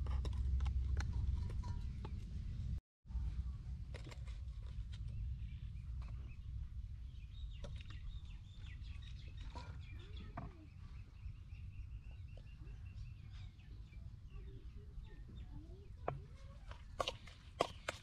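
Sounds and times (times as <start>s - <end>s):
wind rumble on microphone: 0.0s - 17.7s
birds chirping: 5.0s - 18.0s.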